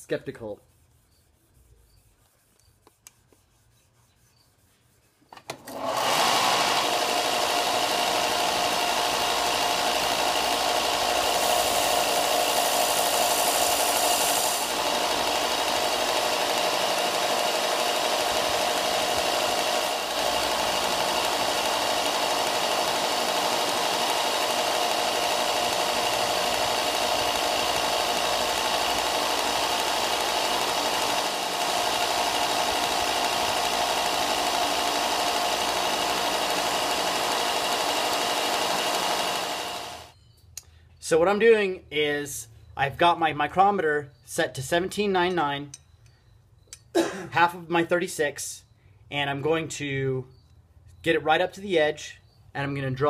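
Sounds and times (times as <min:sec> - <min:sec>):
belt sander running: 0:05.5 - 0:40.2
metal grinding on sanding belt: 0:05.7 - 0:40.1.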